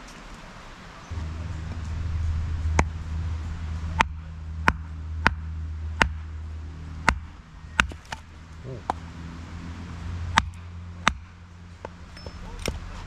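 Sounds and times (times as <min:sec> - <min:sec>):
steady low hum: 0:00.6 - 0:13.0.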